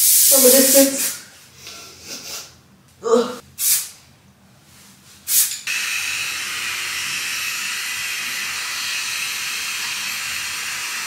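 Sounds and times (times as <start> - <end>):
loud steady hiss with whine: 0.0 - 1.1
aerosol hairspray hiss: 0.0 - 1.2, 3.6 - 3.9.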